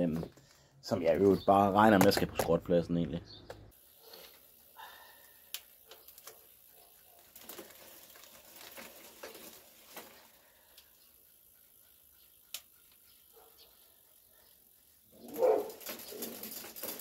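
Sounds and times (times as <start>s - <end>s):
bicycle chain clicking: 3.7s - 17.0s.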